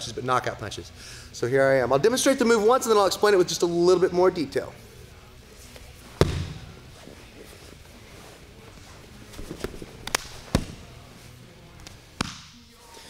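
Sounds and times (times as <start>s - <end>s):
slaps against mat: 6.2s - 6.7s, 11.8s - 12.5s
heavy thump on mat: 6.2s - 6.8s.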